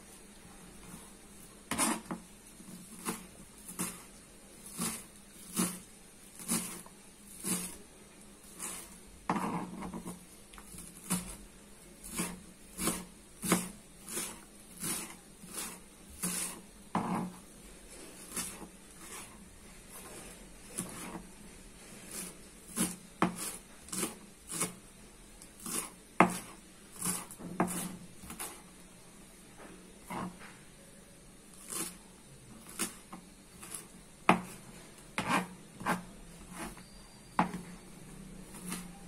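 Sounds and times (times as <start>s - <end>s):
knife chopping on cutting board: 1.7s - 4.1s, 4.7s - 5.8s, 6.4s - 7.8s, 8.6s - 10.2s, 12.1s - 17.4s, 22.1s - 24.8s, 25.6s - 28.6s, 33.6s - 34.6s, 35.2s - 36.8s, 37.4s - 37.6s.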